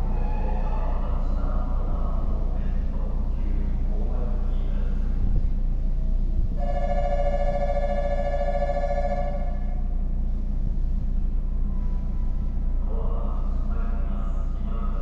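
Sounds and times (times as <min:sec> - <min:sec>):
low station hum: 0:00.0 - 0:15.0
two-tone railway warning signal: 0:06.6 - 0:09.9.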